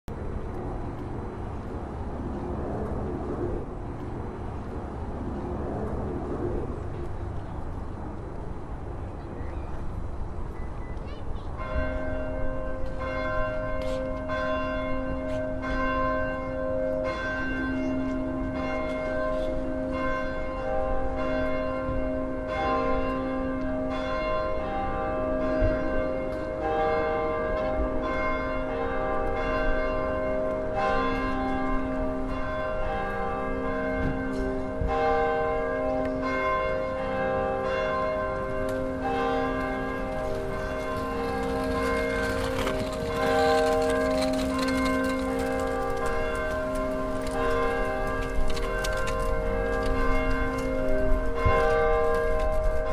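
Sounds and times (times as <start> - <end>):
church bells ringing: 11.0 - 52.9.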